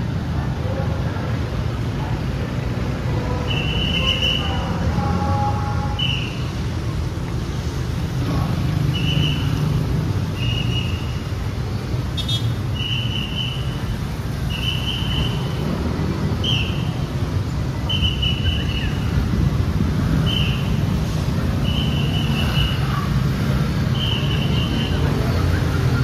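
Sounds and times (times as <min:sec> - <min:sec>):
street traffic rumble: 0:00.0 - 0:26.0
whistle blasts: 0:03.4 - 0:04.7, 0:05.9 - 0:06.5, 0:08.9 - 0:09.6, 0:10.4 - 0:11.2, 0:12.2 - 0:15.6, 0:16.4 - 0:17.0, 0:17.8 - 0:19.1, 0:20.2 - 0:20.8, 0:21.6 - 0:22.9, 0:23.9 - 0:25.0.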